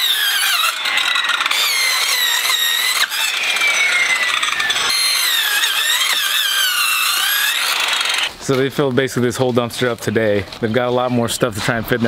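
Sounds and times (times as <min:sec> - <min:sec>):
circular saw cutting: 0:00.0 - 0:08.3.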